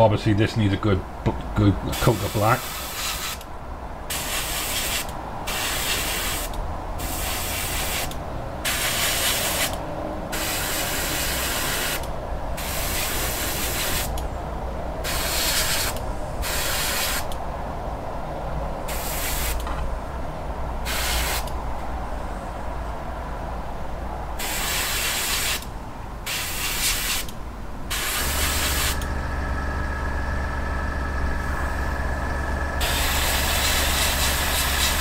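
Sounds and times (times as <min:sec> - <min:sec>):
steady low hum: 0:00.0 - 0:24.4, 0:25.7 - 0:35.0
airbrush spraying hiss: 0:02.1 - 0:03.4, 0:04.1 - 0:08.1, 0:08.7 - 0:09.8, 0:12.6 - 0:14.2, 0:15.0 - 0:17.3, 0:18.9 - 0:19.6, 0:20.9 - 0:21.5, 0:24.4 - 0:25.6, 0:26.3 - 0:27.3, 0:27.9 - 0:29.1, 0:32.8 - 0:35.0.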